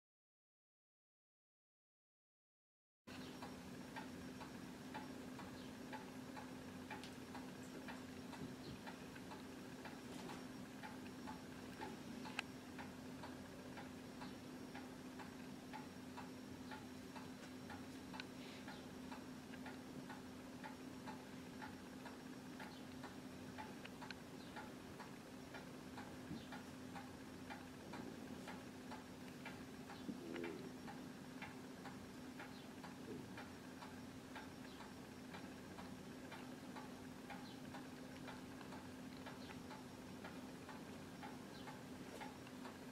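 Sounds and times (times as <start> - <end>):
low steady hum: 3.1 - 42.9
clock ticking: 3.2 - 42.9.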